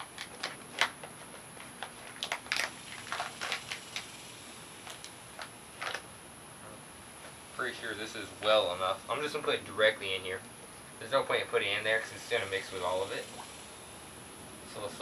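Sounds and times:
paper bag rustling: 0.0 - 4.1.

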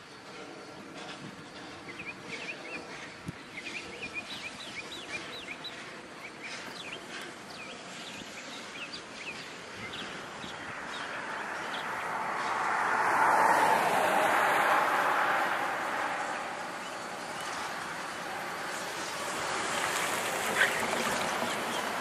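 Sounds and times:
outdoor background noise: 0.0 - 22.0
approaching vehicle: 1.0 - 22.0
small birds chirping: 1.5 - 12.6, 16.3 - 22.0.

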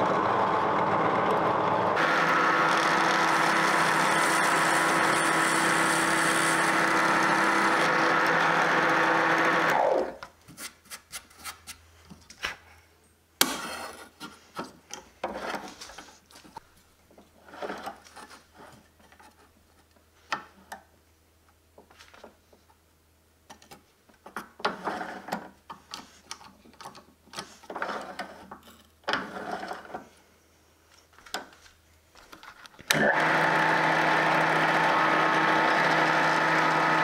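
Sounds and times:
drill press boring into plywood: 0.0 - 10.2, 32.9 - 37.0.

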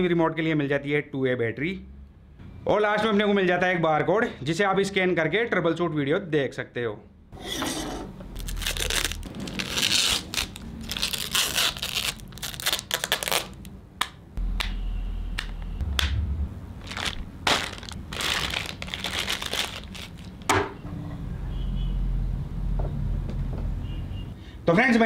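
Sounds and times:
plastic bags crinkling: 8.4 - 13.7, 16.8 - 20.5.

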